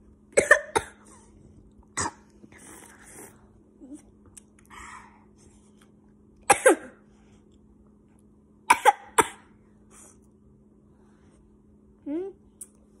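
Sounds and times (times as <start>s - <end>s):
person coughing: 6.5s - 7.0s.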